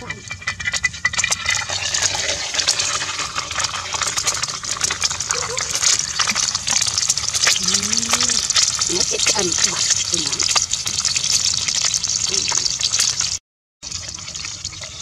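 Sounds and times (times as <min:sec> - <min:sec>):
egg sizzling in hot oil: 0:00.0 - 0:15.0.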